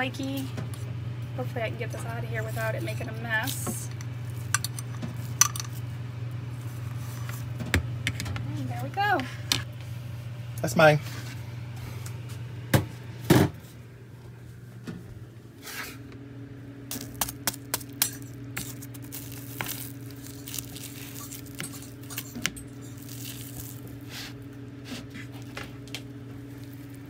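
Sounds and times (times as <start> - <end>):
steady low hum: 0.0 - 27.0
crispy pastry crust breaking: 16.9 - 24.0.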